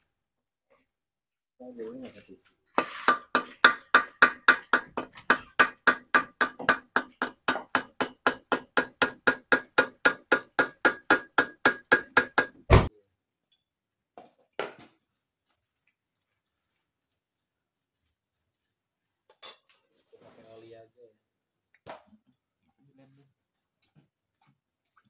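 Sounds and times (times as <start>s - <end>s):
hammer striking metal: 2.8s - 12.9s.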